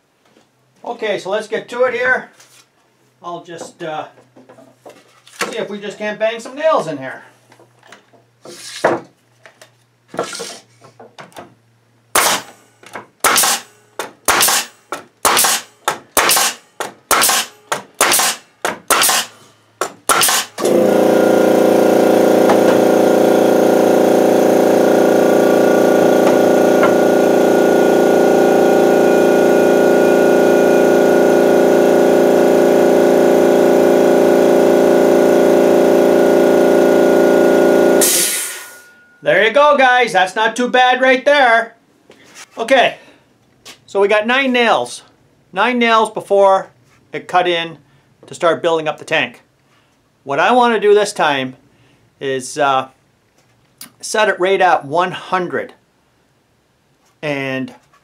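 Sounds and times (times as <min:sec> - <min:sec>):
air compressor running: 0:12.1 - 0:39.0
nail gun shots into wood: 0:12.2 - 0:20.8.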